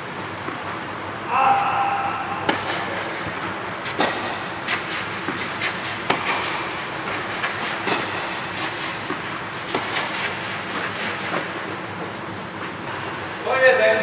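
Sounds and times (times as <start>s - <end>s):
steady background hum: 0.0s - 14.0s
rackets hitting tennis ball: 2.4s - 13.1s.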